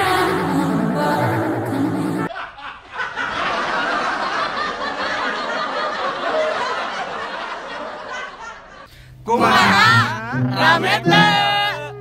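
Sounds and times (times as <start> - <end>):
people laughing: 2.3 - 11.9
people talking: 9.3 - 12.0.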